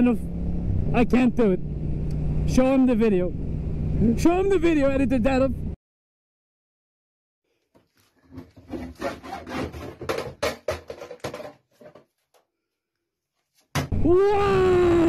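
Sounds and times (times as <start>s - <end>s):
hacksaw sawing plastic: 7.7s - 12.2s.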